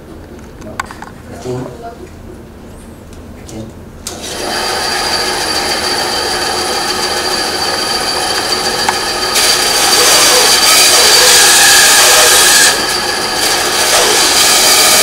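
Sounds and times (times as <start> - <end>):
band saw motor whine: 4.1 - 15.0
saw cutting wooden block: 4.1 - 15.0.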